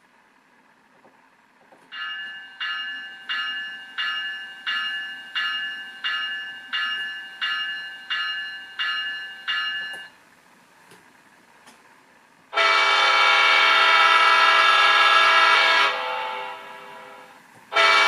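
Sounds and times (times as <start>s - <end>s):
locomotive bell from small speaker: 1.9s - 10.2s.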